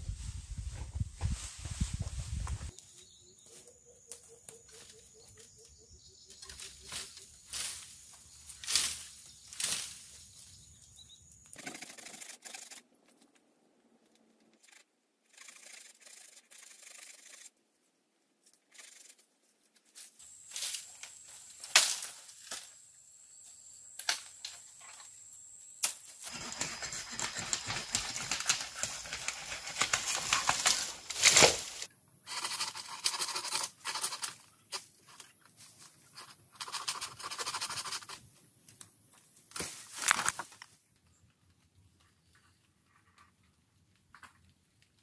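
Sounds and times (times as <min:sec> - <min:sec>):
bamboo rustling through dry leaves: 0:00.0 - 0:03.7, 0:06.4 - 0:10.8, 0:26.1 - 0:31.9, 0:39.5 - 0:40.8.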